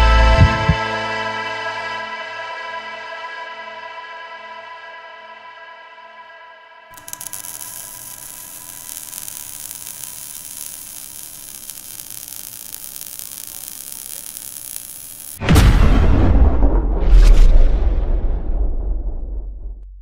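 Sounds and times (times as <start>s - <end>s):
crackling hiss of burning sparks: 6.9s - 15.4s.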